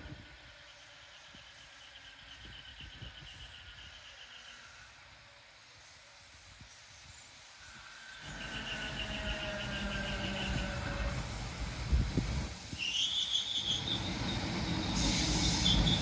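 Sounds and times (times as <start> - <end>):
electric train pulsing whine: 7.6 - 16.0
wheels rumbling on rails: 8.2 - 16.0.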